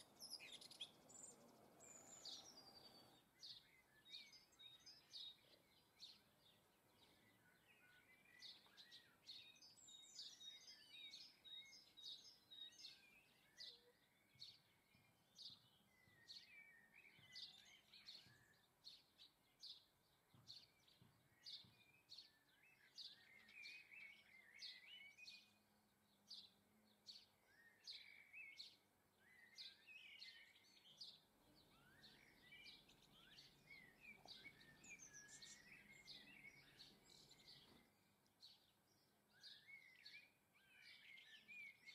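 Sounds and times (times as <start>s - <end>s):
songbirds chirping: 0.0s - 41.9s.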